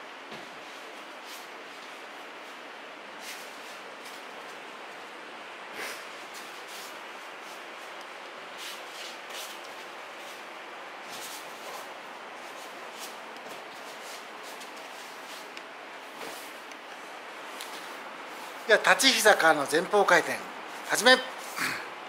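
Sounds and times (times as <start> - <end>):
steady background hiss: 0.0 - 22.0
cloth uniform rustling: 6.0 - 21.6.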